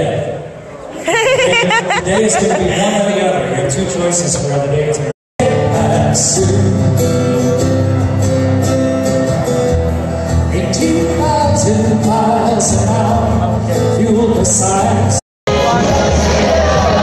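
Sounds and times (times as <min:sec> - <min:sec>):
man singing: 0:05.4 - 0:07.5, 0:10.4 - 0:17.0
acoustic guitar: 0:05.4 - 0:17.0
bass guitar: 0:05.4 - 0:17.0.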